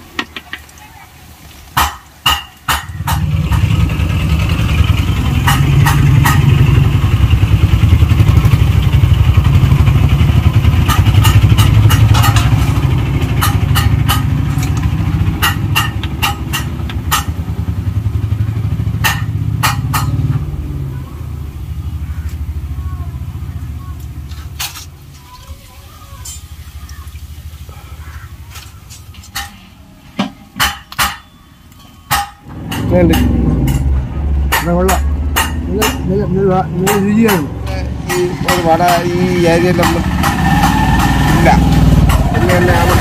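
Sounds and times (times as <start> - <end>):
food frying in oil: 0.0 - 29.6
small engine rumbling: 2.9 - 29.4, 32.4 - 43.0
metal ladle clicking on pan: 10.8 - 17.5.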